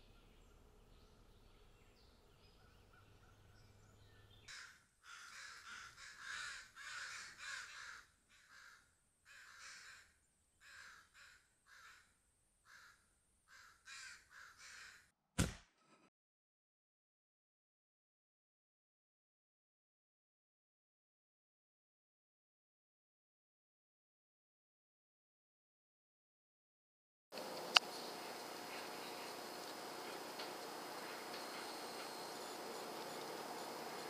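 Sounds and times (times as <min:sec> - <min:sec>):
crow cawing: 0:04.5 - 0:15.1
sharp loud click: 0:15.4 - 0:15.7
faint steady hum: 0:27.4 - 0:34.0.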